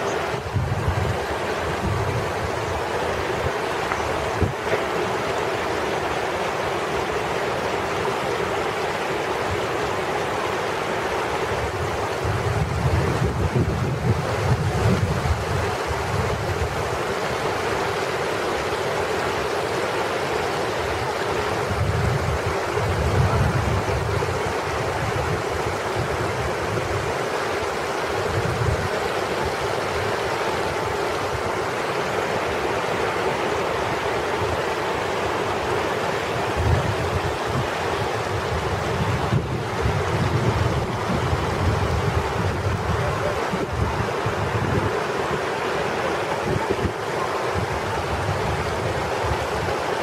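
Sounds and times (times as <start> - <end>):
steady rushing noise: 0.0 - 50.0
wind buffeting microphone: 0.2 - 4.9, 11.5 - 17.0, 20.8 - 27.2, 28.2 - 30.0, 36.4 - 45.5, 46.3 - 49.8.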